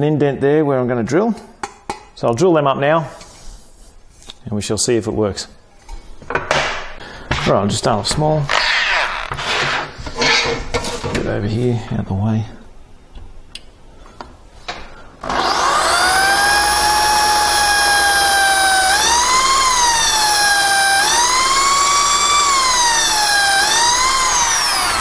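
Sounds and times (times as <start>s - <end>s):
electric drill drilling metal: 8.5s - 10.4s, 15.2s - 25.0s.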